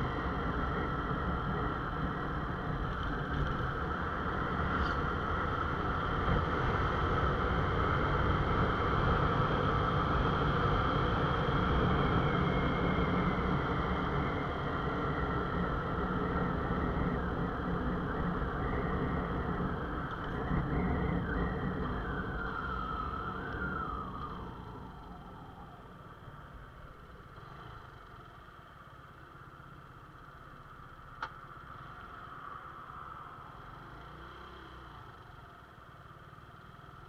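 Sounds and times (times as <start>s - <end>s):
road noise: 0.0s - 37.0s
wind noise: 7.2s - 25.8s.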